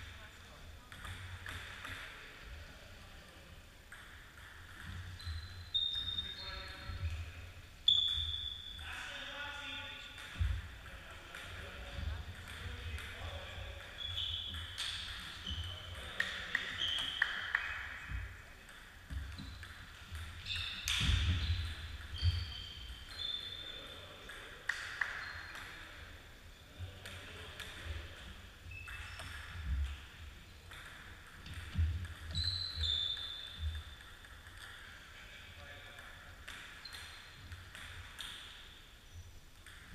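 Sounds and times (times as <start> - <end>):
shoes squeaking on wooden floor: 20.4 - 23.7, 31.8 - 34.0
table tennis ball clicking: 39.5 - 39.9.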